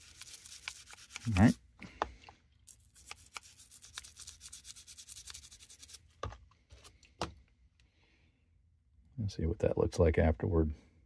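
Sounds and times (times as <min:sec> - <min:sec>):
toothbrush scrubbing metal tools: 0:00.0 - 0:01.6, 0:02.7 - 0:06.0.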